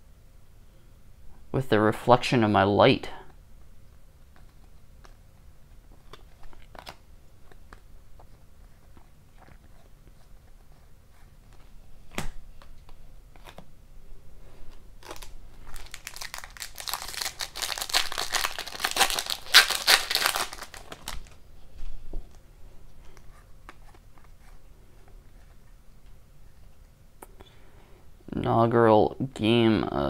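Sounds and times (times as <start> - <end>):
foil wrapper crinkling: 15.0 - 21.4.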